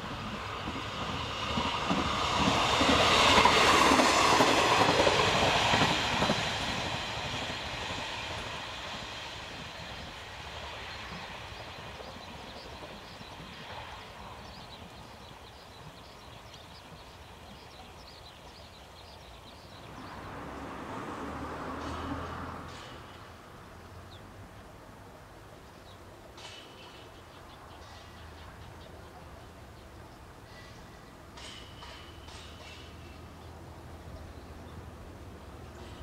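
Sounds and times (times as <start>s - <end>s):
railcar running past: 0.0s - 36.0s
wheels clicking over rail joints: 30.5s - 33.2s.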